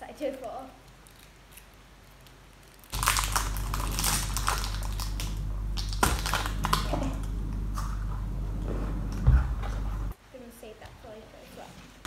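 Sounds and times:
plastic wrapper crinkling: 0.8s - 7.9s.

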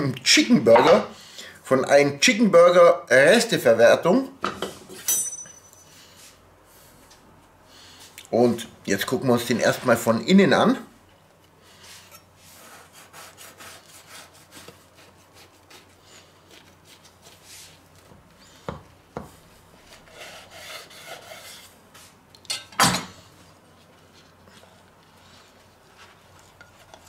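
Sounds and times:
knife sawing through bread crust: 12.4s - 17.8s, 19.8s - 21.8s.

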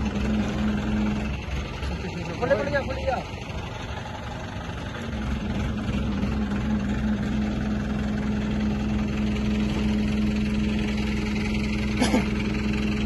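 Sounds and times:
crane diesel engine working: 0.0s - 13.0s.

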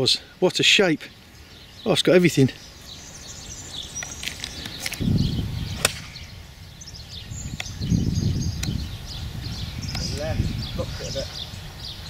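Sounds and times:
birds chirping faintly: 0.0s - 12.0s
wind rumbling on microphone: 2.6s - 12.0s
golf club striking ball: 5.8s - 6.3s.

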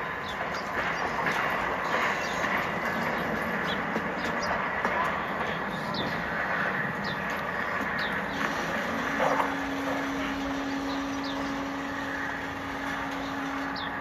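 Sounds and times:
steady mechanical hum: 0.0s - 14.0s
bird chirping: 5.5s - 14.0s.

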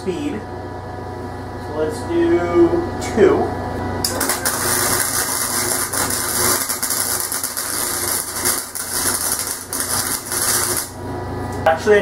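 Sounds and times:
welding arc crackling: 4.0s - 11.1s.

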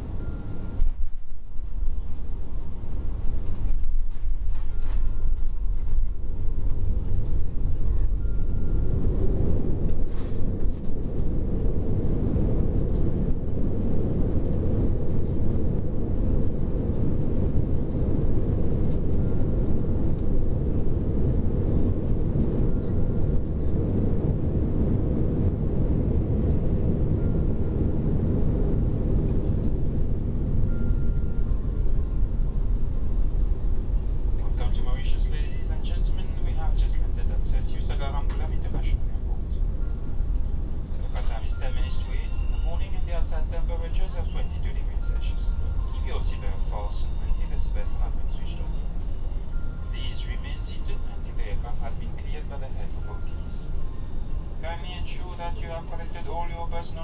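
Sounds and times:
airliner cabin rumble while taxiing: 0.0s - 57.0s.

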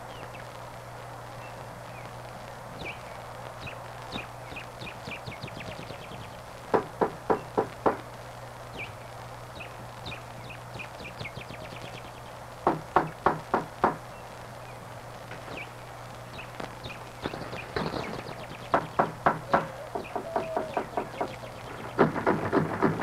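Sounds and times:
steady low hum: 0.0s - 23.0s
bird chirping: 2.8s - 6.5s, 8.7s - 12.4s, 14.1s - 22.4s
loud knocks: 6.8s - 8.0s, 12.7s - 14.0s, 18.7s - 23.0s.

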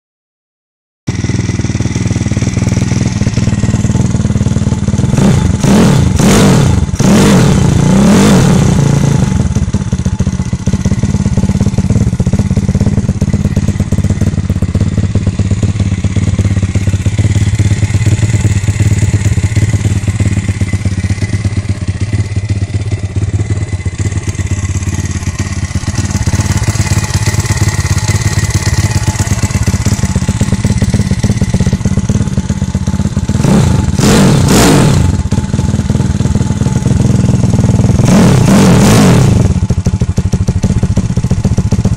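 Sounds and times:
motorcycle engine idling: 1.1s - 7.0s, 8.6s - 38.5s, 39.3s - 41.9s
engine revving: 4.9s - 9.8s, 33.1s - 39.8s.

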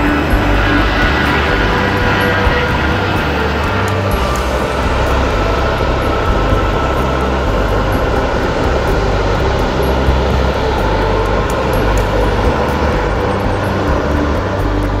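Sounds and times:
jet engines rumbling whine: 0.0s - 15.0s.

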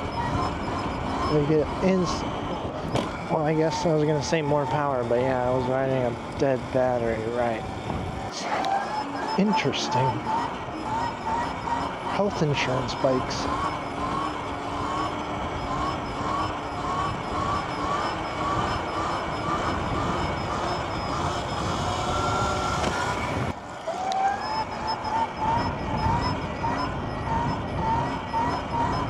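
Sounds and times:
electric dirt bike road noise: 0.0s - 29.0s
short rising chirp: 7.0s - 23.4s
wind noise: 7.6s - 8.4s, 25.3s - 29.0s.

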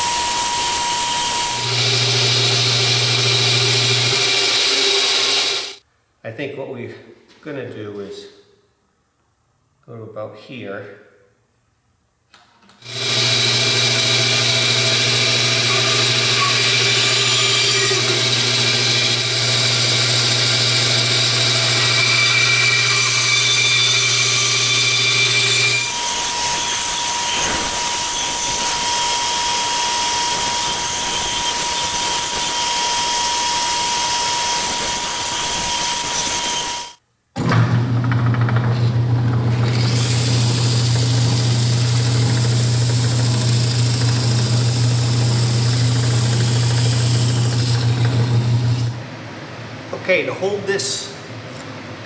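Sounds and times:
bandsaw cutting wood: 0.0s - 5.8s, 12.8s - 37.0s, 39.5s - 49.0s.

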